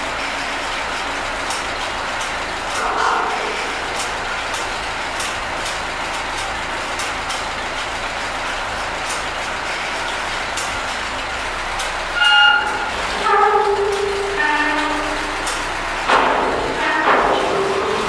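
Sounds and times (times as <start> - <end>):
tractor engine idling: 0.0 - 18.0
high-pitched tone: 2.8 - 4.3.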